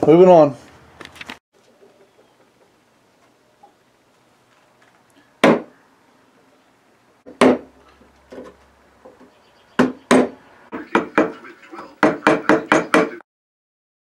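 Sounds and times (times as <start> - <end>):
chisel struck into wood: 5.4 - 5.7, 7.3 - 7.7, 9.8 - 11.3, 12.0 - 13.2.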